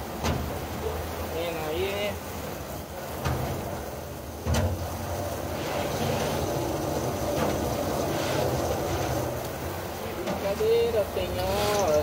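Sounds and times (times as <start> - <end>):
low machine hum: 0.0 - 12.0
pressure washer spraying: 1.8 - 12.0.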